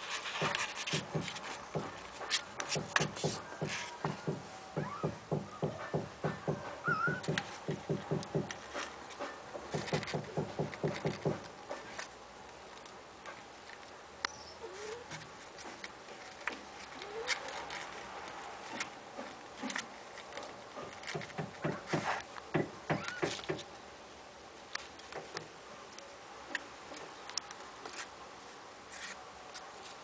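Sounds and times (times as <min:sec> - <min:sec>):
faint short squeaks: 0:06.8 - 0:07.4.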